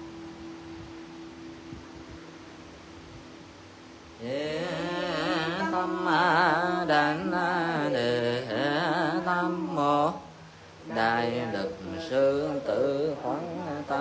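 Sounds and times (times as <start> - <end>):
faint steady hum: 0.0 - 14.0
solo voice chanting: 4.2 - 14.0.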